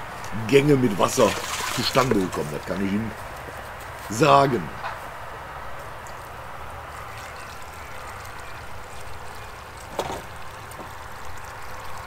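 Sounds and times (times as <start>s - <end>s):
water pouring onto soil: 1.0s - 2.9s, 6.9s - 12.0s.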